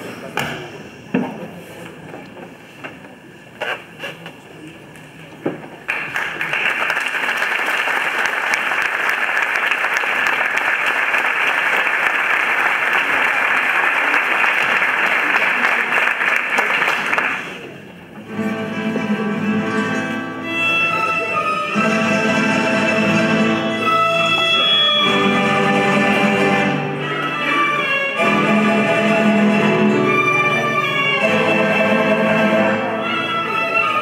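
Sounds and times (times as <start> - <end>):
audience applauding: 5.8 - 17.7
string band playing: 18.2 - 34.0.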